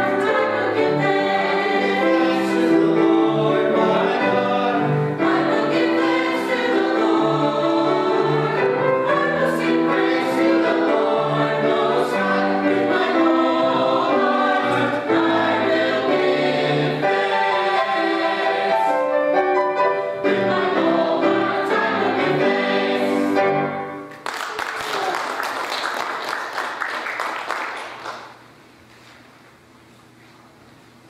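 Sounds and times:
choir singing in harmony: 0:00.0 - 0:24.1
piano accompaniment: 0:00.0 - 0:24.2.

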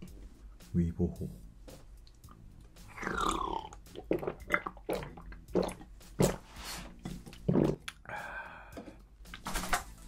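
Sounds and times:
gulping swallows: 0:02.9 - 0:06.4
person sipping drink: 0:02.9 - 0:08.2.

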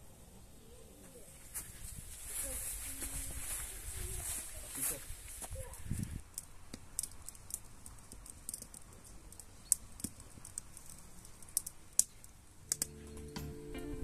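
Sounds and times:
fire crackling: 0:06.2 - 0:13.4.

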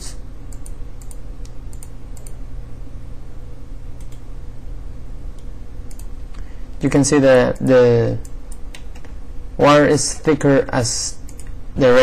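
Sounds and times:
steady low hum: 0:00.0 - 0:12.0
computer mouse clicks: 0:00.5 - 0:02.4, 0:04.0 - 0:04.2, 0:05.4 - 0:06.5, 0:11.2 - 0:11.6.

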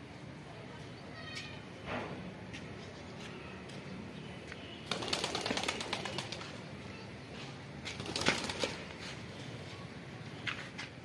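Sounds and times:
pigeon wings flapping: 0:04.8 - 0:06.6, 0:07.9 - 0:09.0.

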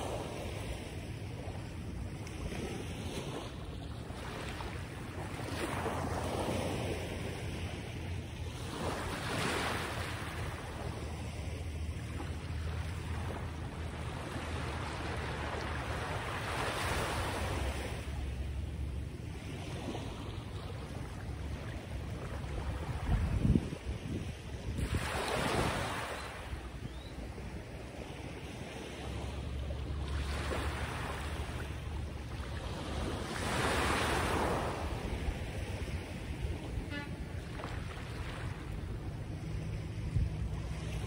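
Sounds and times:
wind blowing on microphone: 0:22.6 - 0:26.0.

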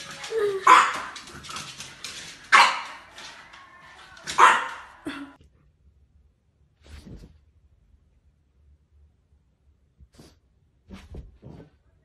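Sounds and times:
puppy barking: 0:00.6 - 0:01.4, 0:02.5 - 0:03.1, 0:04.3 - 0:05.0.

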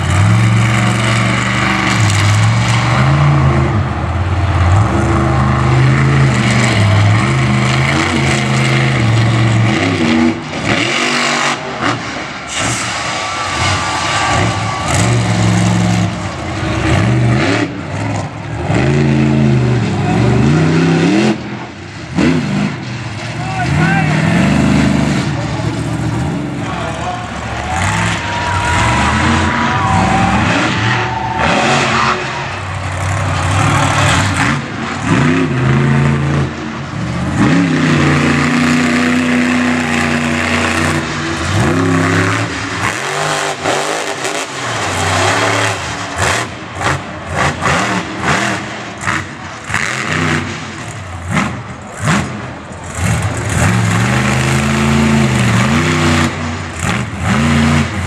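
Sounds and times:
truck engine revving: 0:00.0 - 0:58.0.

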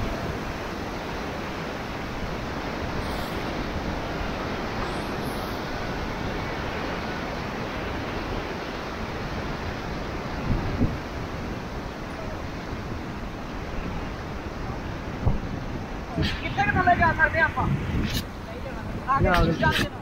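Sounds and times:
river rapids rushing: 0:00.0 - 0:20.0
wind on microphone: 0:00.0 - 0:20.0.

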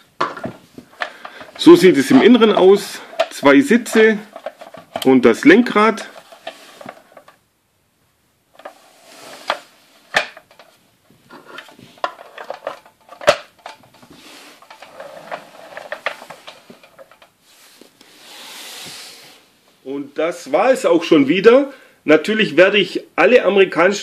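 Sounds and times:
plastic toy parts clicking and knocking: 0:00.2 - 0:05.1, 0:11.4 - 0:14.0.

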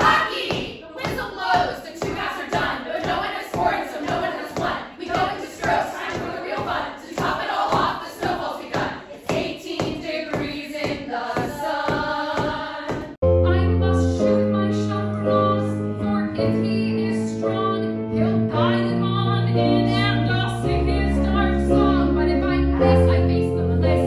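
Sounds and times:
cast singing together: 0:00.0 - 0:13.2
women singing: 0:00.0 - 0:24.0.

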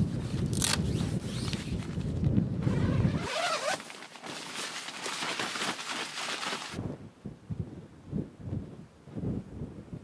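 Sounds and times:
wind rumble on microphone: 0:00.0 - 0:03.5, 0:06.7 - 0:10.0
tent zipper rasping: 0:00.2 - 0:02.0, 0:02.6 - 0:06.8.

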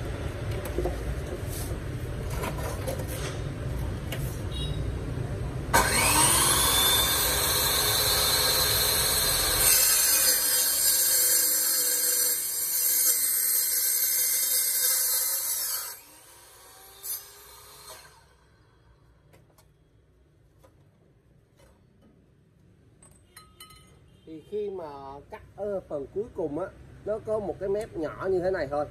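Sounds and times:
saw motor whining: 0:05.7 - 0:18.4
saw blade cutting steel tube: 0:05.8 - 0:18.4.

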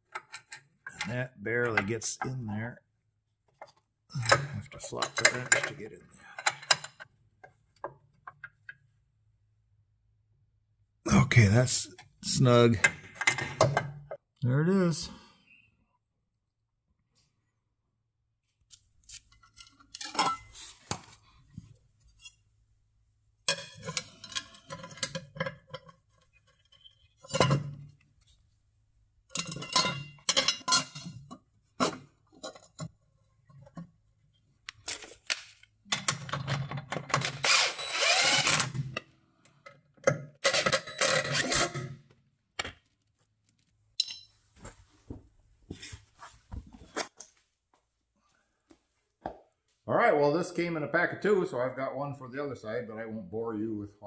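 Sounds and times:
tools clinking against steel: 0:44.0 - 0:44.4.

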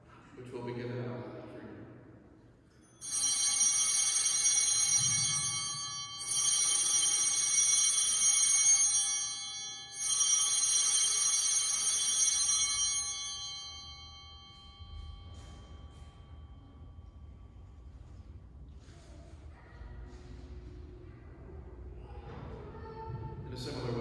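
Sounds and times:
altar bells jangling: 0:02.7 - 0:17.9.

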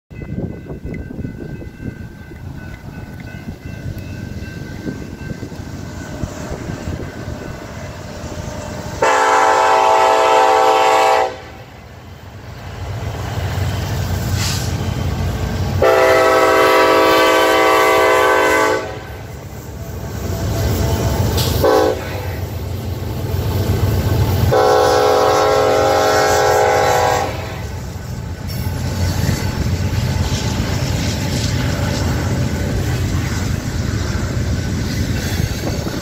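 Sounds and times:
freight train rumble: 0:00.1 - 0:36.0
locomotive air horn blasts: 0:09.0 - 0:11.8, 0:15.8 - 0:19.3, 0:21.4 - 0:22.5, 0:24.4 - 0:27.8.

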